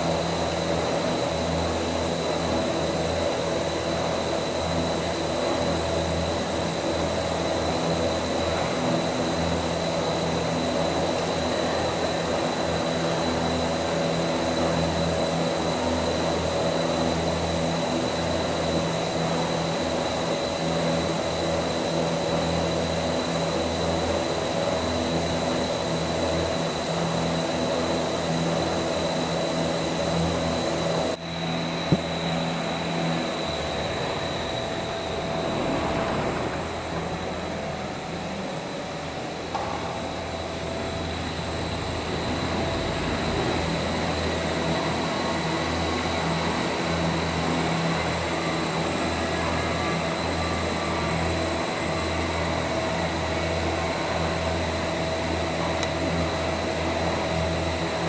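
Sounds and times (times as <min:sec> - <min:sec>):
motor hum: 0:00.0 - 0:57.9.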